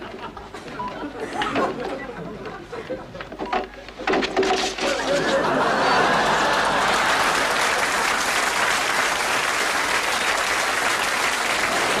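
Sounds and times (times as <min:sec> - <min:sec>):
studio audience applauding: 0:05.4 - 0:12.0.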